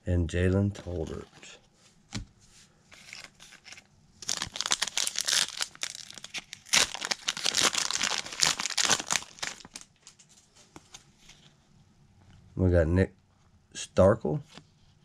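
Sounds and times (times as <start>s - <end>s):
foil wrapper crinkling and tearing: 3.0s - 10.2s.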